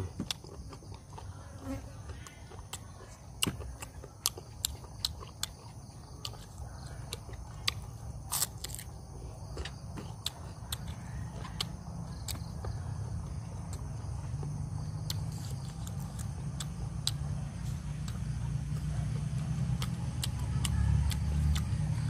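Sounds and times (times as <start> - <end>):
crickets and insects chirping: 0.0 - 22.0
person chewing and biting: 2.5 - 12.8, 13.7 - 18.9.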